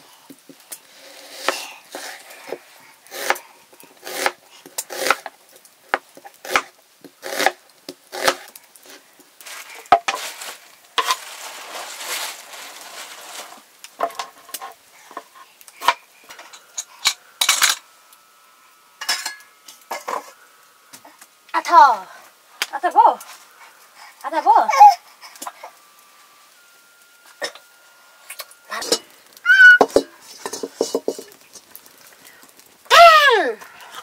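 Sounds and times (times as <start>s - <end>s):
knife rasping through onion: 3.0s - 3.4s, 4.0s - 5.2s
pan and dishes clattering: 13.4s - 17.9s, 19.0s - 20.4s, 28.3s - 31.8s.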